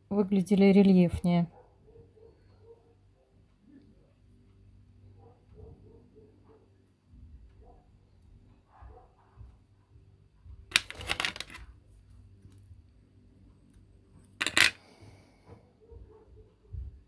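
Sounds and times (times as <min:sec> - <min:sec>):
clicking rustling handling noise: 0:10.7 - 0:11.7, 0:14.4 - 0:14.8.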